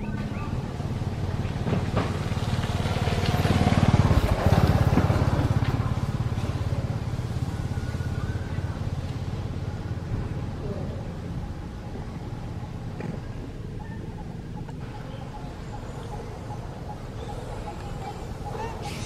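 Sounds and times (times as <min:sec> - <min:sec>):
small vehicle engine passing by: 0:00.0 - 0:11.4.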